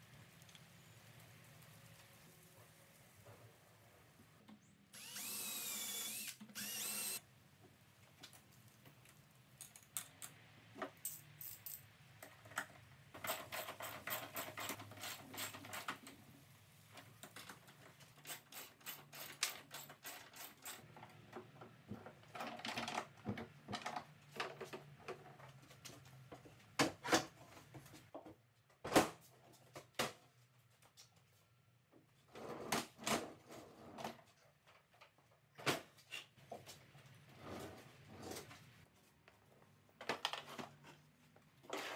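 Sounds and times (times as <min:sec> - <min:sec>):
cordless drill whirring: 0:05.0 - 0:07.2.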